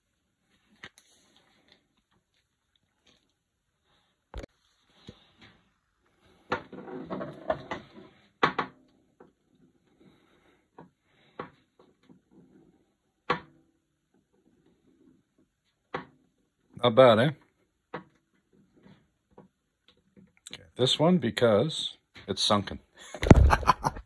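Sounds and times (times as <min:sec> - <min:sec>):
steel ball rolling on wood: 0:06.5 - 0:08.8.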